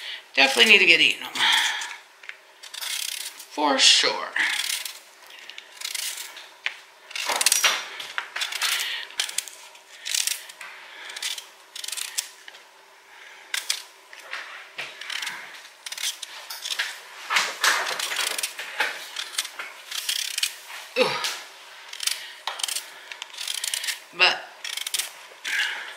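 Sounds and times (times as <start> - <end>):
peeler scraping sweet potato: 0.4 - 1.9, 2.6 - 3.6, 4.4 - 6.4, 7.1 - 7.7, 8.4 - 12.4, 14.9 - 16.9, 17.8 - 20.6, 21.9 - 25.8.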